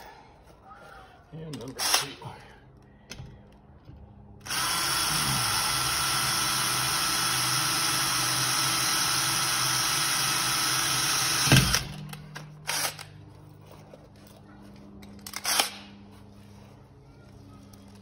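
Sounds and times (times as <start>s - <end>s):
cordless drill whining: 4.4s - 12.0s.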